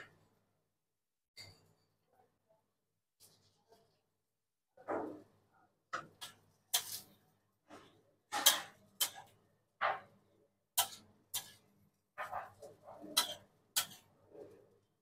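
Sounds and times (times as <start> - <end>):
metal spatula scraping griddle: 6.0 - 10.1, 10.8 - 14.8.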